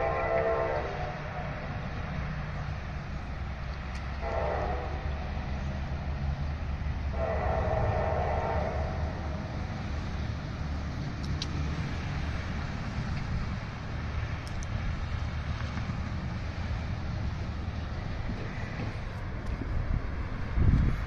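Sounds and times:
locomotive horn blast: 0.0 - 1.8, 4.1 - 5.6, 7.0 - 9.5
steady low rumble: 0.0 - 21.0.

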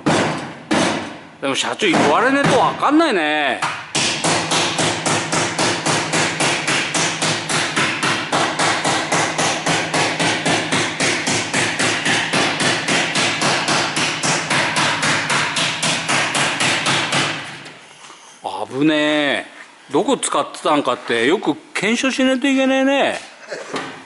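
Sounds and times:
hammer striking: 3.6 - 17.6.

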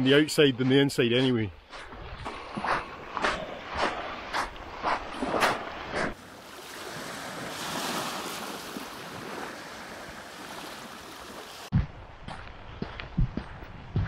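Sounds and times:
footsteps on sand: 0.0 - 6.2, 6.9 - 14.0
small waves washing ashore: 1.6 - 11.7.

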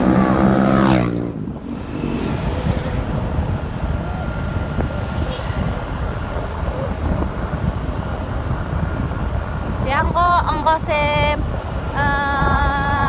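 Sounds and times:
motorcycle engine and road rumble: 0.0 - 13.0
wind over microphone: 0.0 - 13.0.

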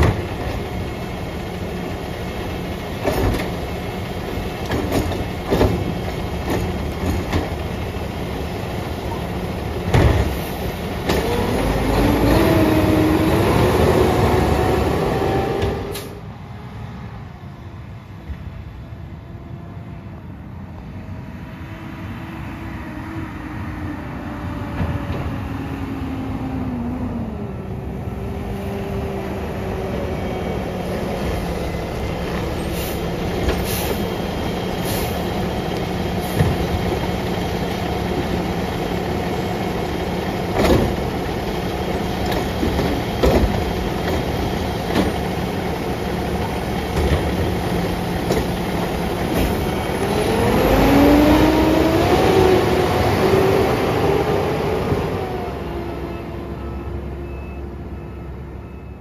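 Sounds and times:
garbage truck engine: 0.0 - 16.6, 21.8 - 59.0.

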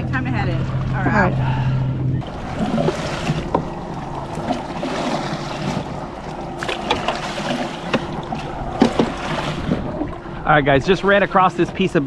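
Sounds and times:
water washing: 0.0 - 12.0
wind noise on microphone: 8.1 - 11.1.

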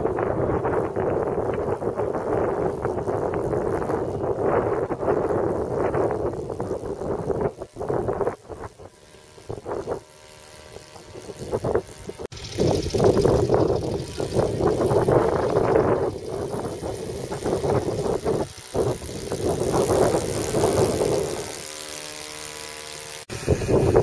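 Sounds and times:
aircraft engine and propeller droning: 8.9 - 24.0.

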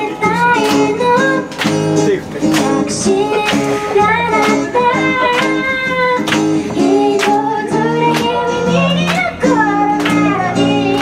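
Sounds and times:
woman singing: 0.0 - 1.7, 2.7 - 11.0
strummed acoustic guitar: 0.0 - 11.0.

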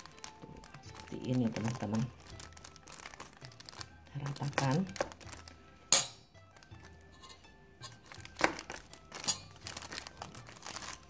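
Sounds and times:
plastic crinkling: 0.0 - 5.7, 6.4 - 7.2, 7.9 - 11.0
faint background music: 0.0 - 11.0.

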